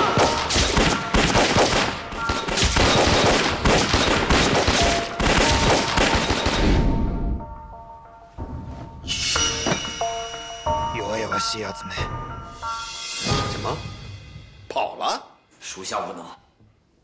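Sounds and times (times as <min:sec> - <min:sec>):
rapid pistol fire: 0:00.0 - 0:06.6.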